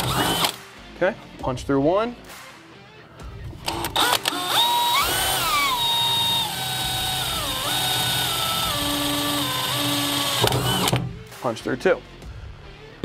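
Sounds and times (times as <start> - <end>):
cordless drill boring through metal: 0.0 - 0.6, 3.7 - 11.0.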